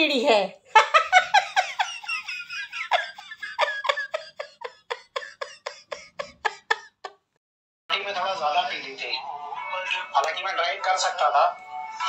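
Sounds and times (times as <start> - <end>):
high-pitched laughter: 0.8 - 7.2.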